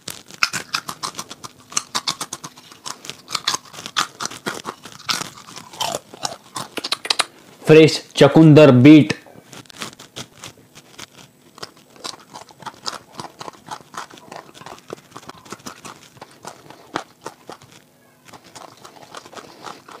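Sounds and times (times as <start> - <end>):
chewing crunchy beetroot: 0.0 - 7.6, 9.4 - 20.0.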